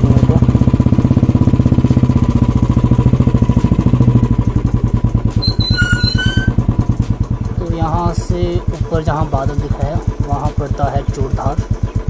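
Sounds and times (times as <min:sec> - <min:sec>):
motorcycle engine running: 0:00.0 - 0:12.0
short high chirps: 0:05.4 - 0:06.6.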